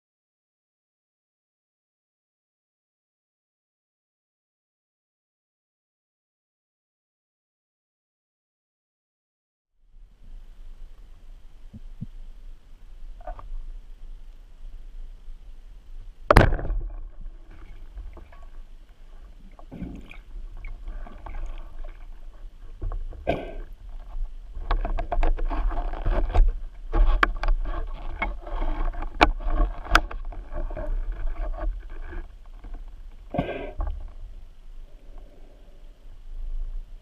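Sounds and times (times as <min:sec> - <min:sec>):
underwater swishing and sloshing: 0:10.0 - 0:37.0.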